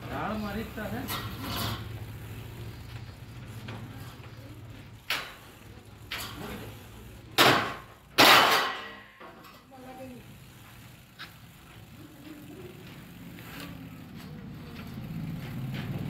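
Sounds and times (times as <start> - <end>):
metal clangs and clatters: 1.0 - 2.0, 7.4 - 9.7.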